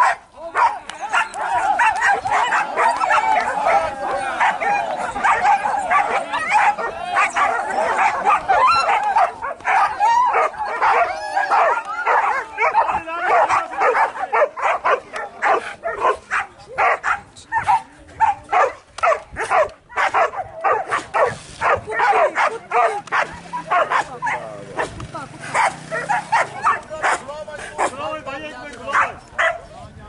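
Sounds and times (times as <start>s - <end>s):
dogs yelping and whining: 1.0s - 14.7s.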